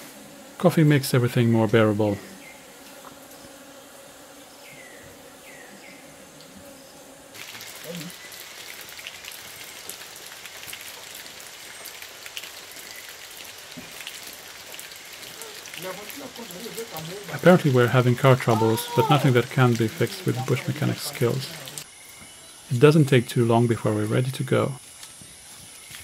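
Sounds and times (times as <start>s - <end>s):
light rain pattering: 7.3s - 21.9s.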